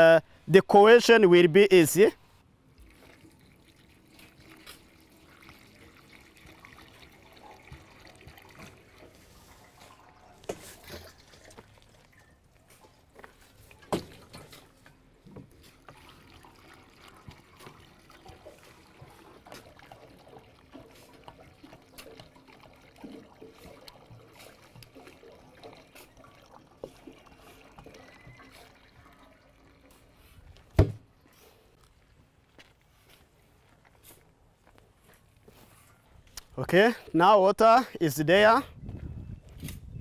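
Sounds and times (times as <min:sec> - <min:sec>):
water pouring and trickling: 0:00.6 - 0:37.1.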